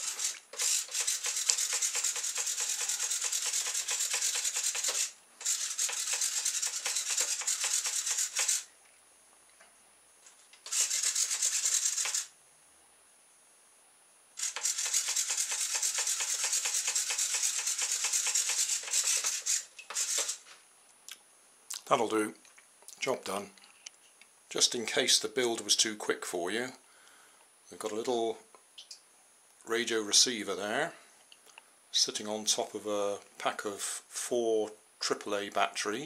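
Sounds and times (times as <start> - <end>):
servo buzzing and rasping: 0.0 - 8.7, 10.6 - 12.3, 14.4 - 20.4.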